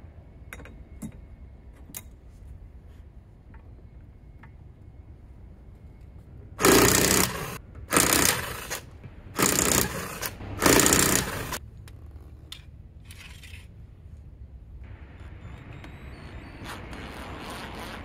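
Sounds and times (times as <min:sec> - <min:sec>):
impact wrench bursts: 0:06.6 - 0:11.6.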